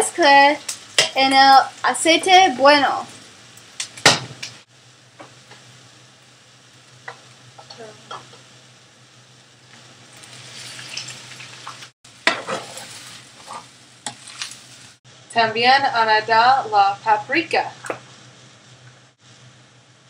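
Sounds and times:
rice sizzling in oil: 0.0 - 15.1.

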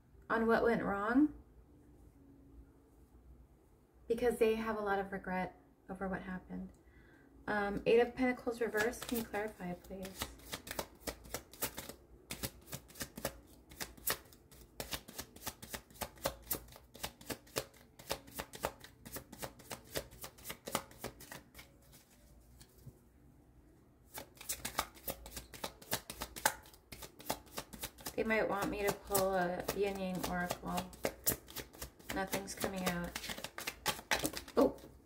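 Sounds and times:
cards being shuffled: 8.7 - 22.9, 24.1 - 35.0.

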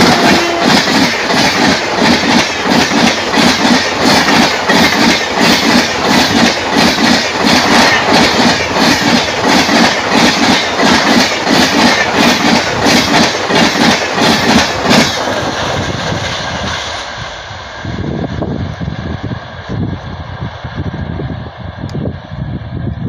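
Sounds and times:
train wheels clickety-clack: 0.0 - 17.2
steady train rumble: 0.0 - 23.0.

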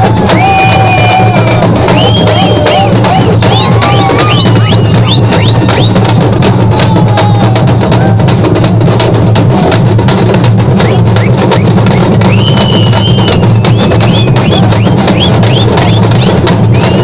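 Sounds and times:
fast barrel drumming: 0.0 - 17.0
shrill whistles: 0.3 - 6.0, 10.8 - 17.0.

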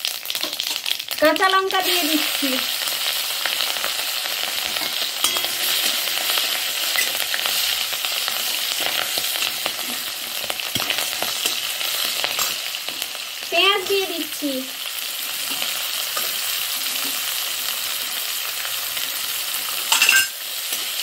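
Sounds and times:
spices sizzling in hot oil: 0.0 - 21.0
metal spatula scraping pan: 4.6 - 7.7.

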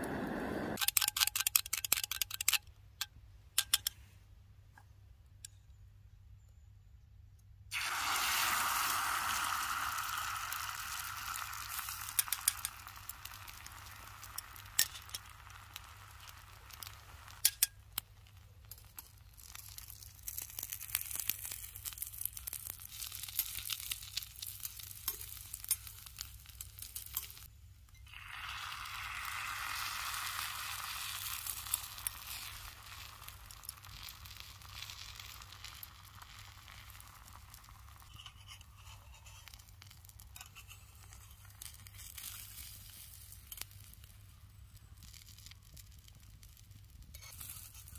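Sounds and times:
food sizzling in a pan: 7.7 - 17.6, 19.4 - 27.5, 28.1 - 44.2
utensil scraping a pan: 38.0 - 39.7, 40.4 - 41.6.

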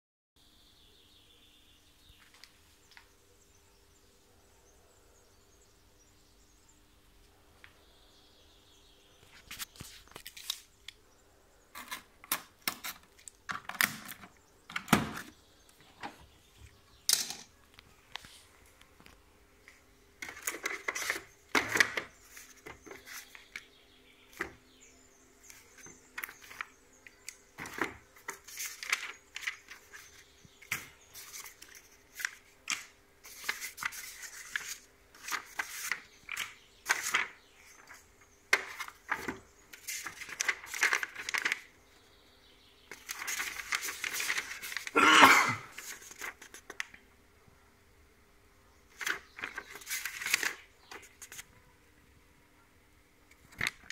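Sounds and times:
packaging rustling and tearing: 38.6 - 41.7, 42.9 - 45.0, 49.0 - 51.5.

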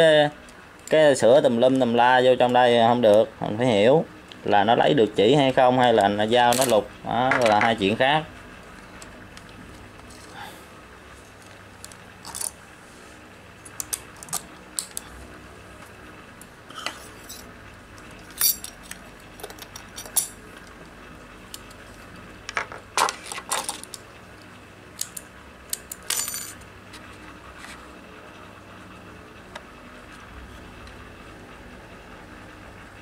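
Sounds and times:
small metal tools clinking: 18.3 - 20.4.

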